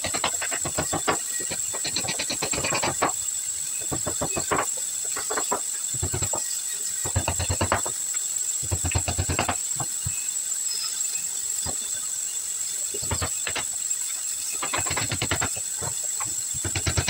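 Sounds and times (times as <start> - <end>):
rapid clicking bursts: 0.0 - 17.0
steady high hiss: 0.0 - 17.0.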